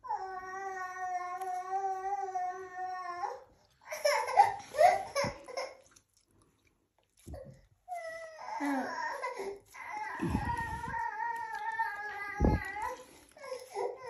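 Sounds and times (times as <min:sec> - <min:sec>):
young children vocalising: 0:09.7 - 0:14.0.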